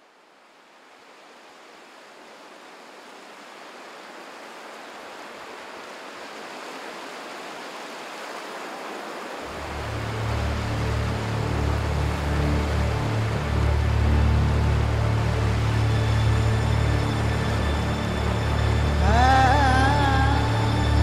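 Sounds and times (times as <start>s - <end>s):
steady rushing noise: 9.4s - 21.0s
music: 9.5s - 21.0s.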